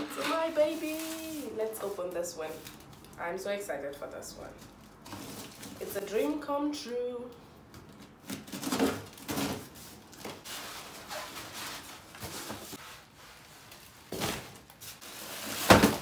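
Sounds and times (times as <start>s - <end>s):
plastic wrap crinkling: 0.0s - 3.3s.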